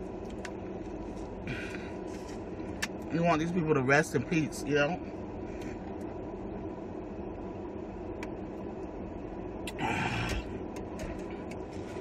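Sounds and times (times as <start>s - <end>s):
car cabin hum: 0.0s - 12.0s.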